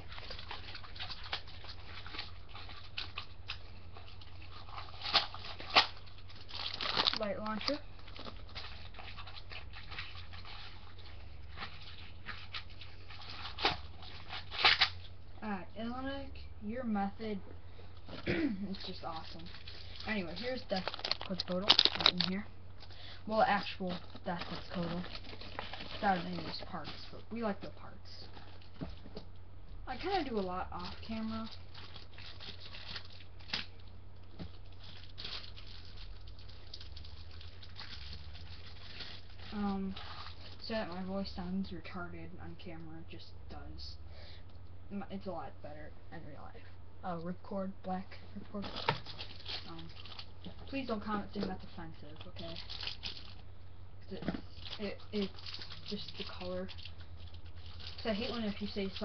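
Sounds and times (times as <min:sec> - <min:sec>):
packaging rustling: 0:00.0 - 0:15.2, 0:18.8 - 0:27.6, 0:30.0 - 0:41.0, 0:48.6 - 0:53.5, 0:54.2 - 0:59.0
steady low hum: 0:00.0 - 0:59.0
small plastic parts clicking: 0:20.8 - 0:22.3.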